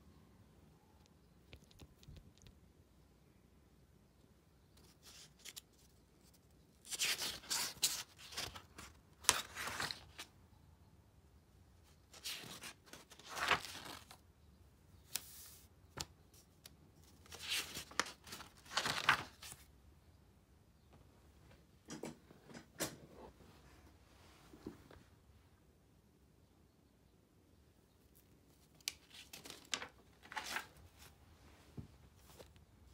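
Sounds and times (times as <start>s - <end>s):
paper pages rustling: 4.8s - 10.3s, 12.1s - 14.2s, 17.0s - 19.7s, 28.7s - 31.2s.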